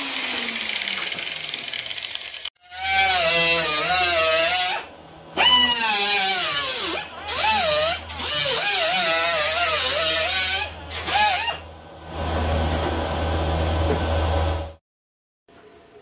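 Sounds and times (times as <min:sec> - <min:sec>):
pneumatic cut-off tool cutting steel: 0:00.0 - 0:11.6.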